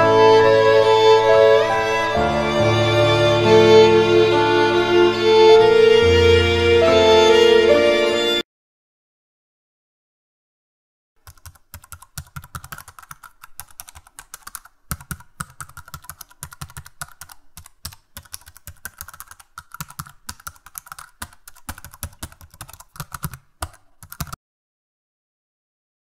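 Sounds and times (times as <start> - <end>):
keyboard typing: 11.2 - 24.4.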